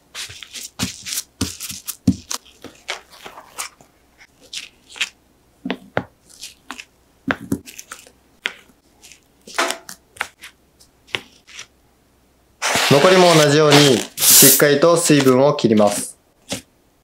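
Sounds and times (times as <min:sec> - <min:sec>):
paper towel rustling: 0:00.0 - 0:05.1, 0:12.6 - 0:16.6.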